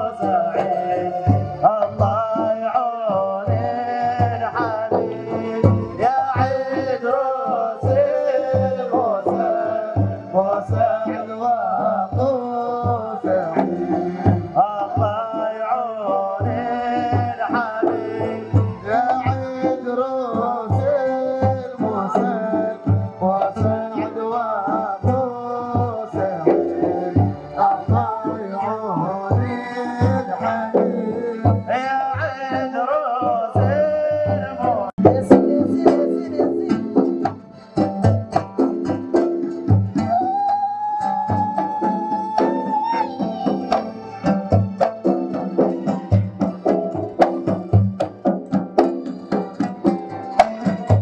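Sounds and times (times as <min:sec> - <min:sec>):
hand drums beating: 0:00.0 - 0:51.0
wavering melody: 0:40.1 - 0:44.8.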